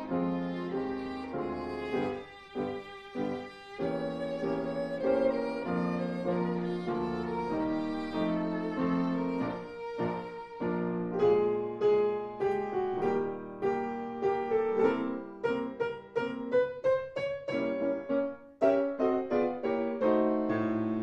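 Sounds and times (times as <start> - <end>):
violin-led instrumental music: 0.0 - 16.5, 18.7 - 21.0.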